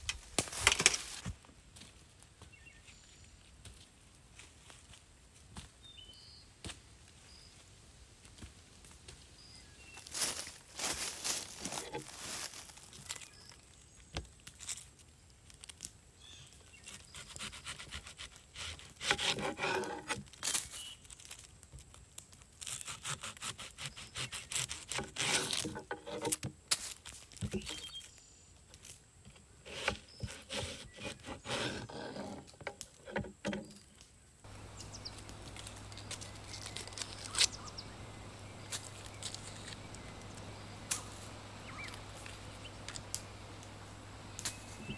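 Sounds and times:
onion skin rustling: 0:10.1 - 0:13.6, 0:16.7 - 0:27.9, 0:34.5 - 0:44.9
knife cutting onion on wood: 0:17.2 - 0:20.2, 0:22.8 - 0:26.5, 0:29.7 - 0:33.7
steady low hum: 0:34.5 - 0:44.9.

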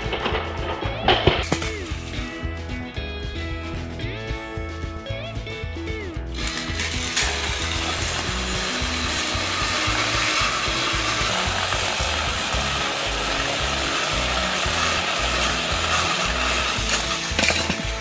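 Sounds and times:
music with bass line: 0:00.0 - 0:18.0
toy train motors whirring: 0:06.3 - 0:18.0.

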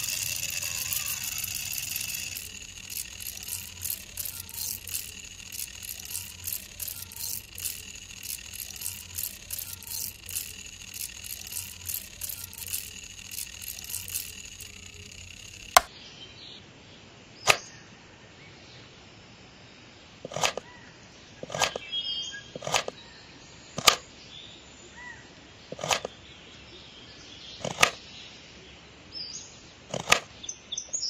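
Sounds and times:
blade rasping on grinding wheel: 0:00.0 - 0:15.9
sharp clicks: 0:00.0 - 0:15.9
small grinder motor whining: 0:00.0 - 0:15.9.

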